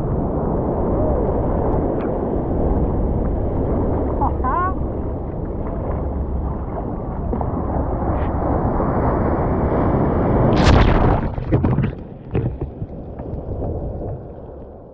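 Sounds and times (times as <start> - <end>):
rushing water: 0.0 - 14.9
wave splashing over deck: 5.2 - 12.9
water sloshing and dripping: 10.6 - 14.8.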